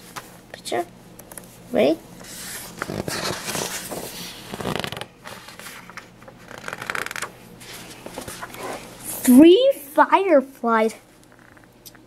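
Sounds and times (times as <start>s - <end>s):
book pages rustling: 2.2s - 8.9s.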